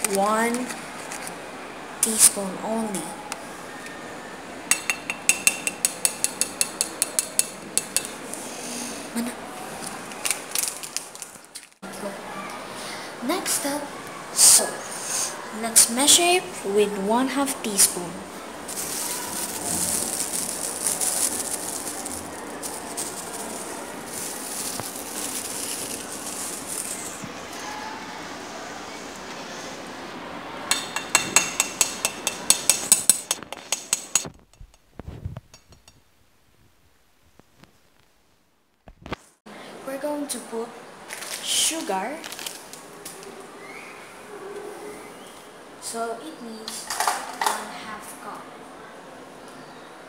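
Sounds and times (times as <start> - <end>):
metal spoon clinking on steel bowl: 4.7 - 8.2, 30.7 - 34.6
plastic bag rustling and crinkling: 9.7 - 11.8, 18.6 - 27.6, 41.1 - 42.9
salt grains rattling: 18.7 - 27.2.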